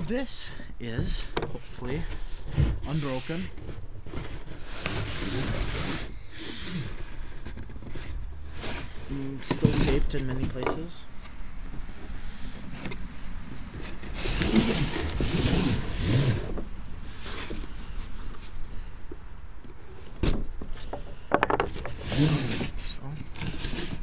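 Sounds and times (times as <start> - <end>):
cardboard flaps scraping: 1.7 - 10.4, 13.7 - 18.6.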